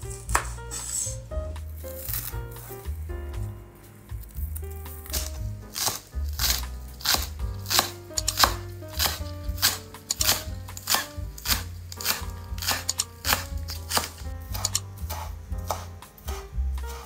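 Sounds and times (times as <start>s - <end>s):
background music with bass: 0.0s - 17.0s
knife chopping vegetables on board: 0.2s - 1.0s, 4.5s - 17.0s.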